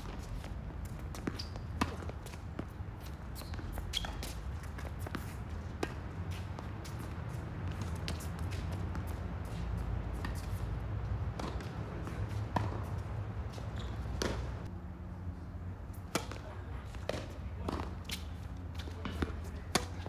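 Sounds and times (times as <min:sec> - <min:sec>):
balls bouncing on hard court: 0:00.0 - 0:10.6, 0:11.3 - 0:14.6
tennis balls hit by rackets: 0:00.0 - 0:14.7, 0:16.0 - 0:20.0.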